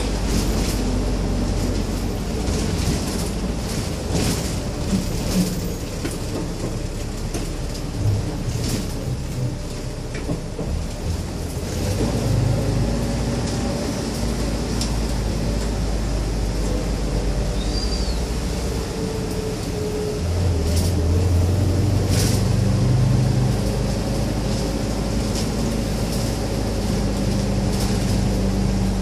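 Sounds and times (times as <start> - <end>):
rattles and knocks from vehicle body: 0.0 - 12.3
engine and road rumble: 0.0 - 29.0.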